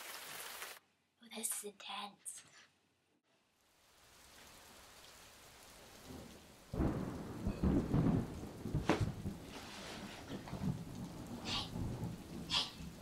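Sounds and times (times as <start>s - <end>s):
rain hissing: 0.0s - 0.8s, 3.4s - 13.0s
thunder rumbling: 5.6s - 13.0s.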